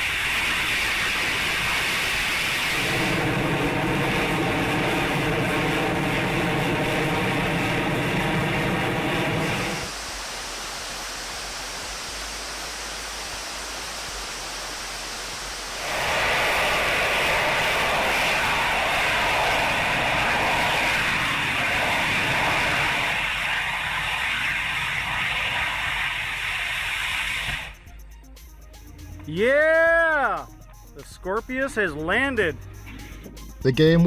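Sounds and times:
rocket engine firing: 0:00.0 - 0:09.9, 0:15.8 - 0:27.8.

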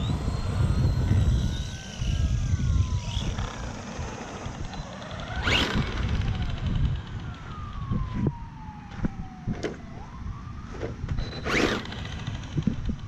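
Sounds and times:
rc truck electric motor whining: 0:00.0 - 0:08.0, 0:10.6 - 0:13.0.

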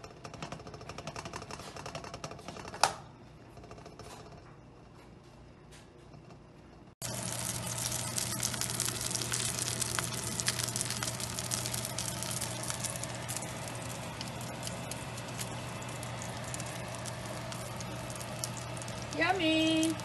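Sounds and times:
low steady hum: 0:03.1 - 0:20.0
food sizzling in hot oil: 0:07.0 - 0:20.0.

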